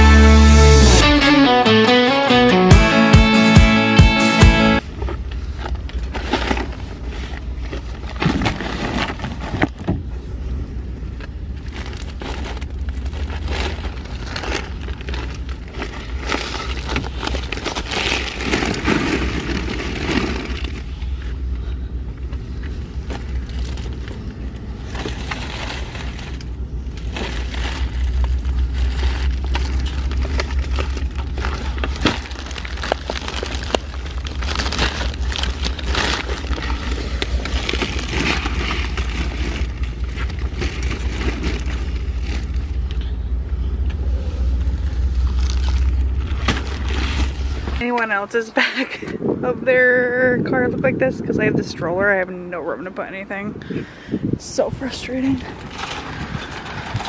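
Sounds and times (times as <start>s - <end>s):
shopping bags rustling: 4.5s - 9.8s, 11.3s - 43.7s, 44.3s - 49.0s, 54.8s - 57.0s
wind rumble on microphone: 47.2s - 57.0s.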